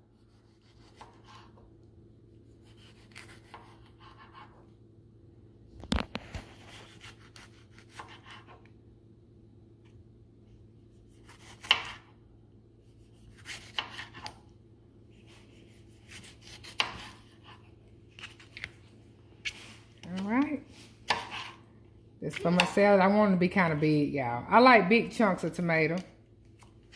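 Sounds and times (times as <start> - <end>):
knife slicing tomato: 0.1 - 1.6, 2.4 - 4.7, 6.2 - 8.7, 11.0 - 12.2, 12.8 - 14.5, 15.1 - 18.7, 19.4 - 21.6.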